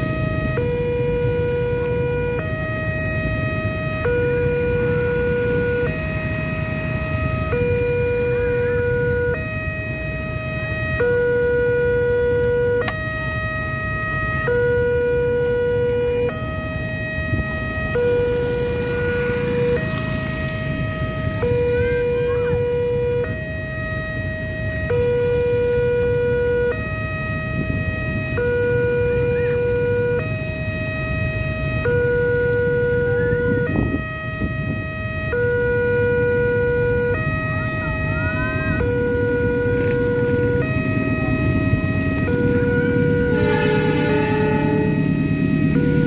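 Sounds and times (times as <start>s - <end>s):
level crossing two-tone alarm: 0.0s - 46.0s
motorcycles idling: 17.5s - 23.1s, 37.1s - 46.0s.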